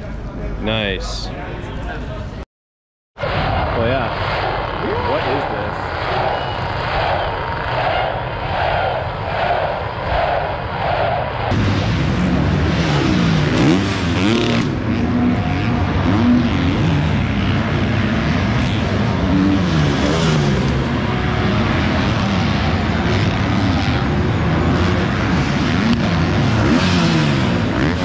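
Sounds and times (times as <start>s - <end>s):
motocross bikes revving past: 11.5s - 28.0s.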